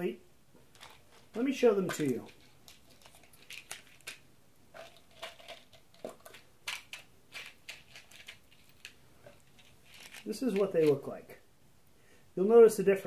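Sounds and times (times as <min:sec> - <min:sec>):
plastic tubs clicking and rattling: 0:00.7 - 0:04.2, 0:04.8 - 0:11.0.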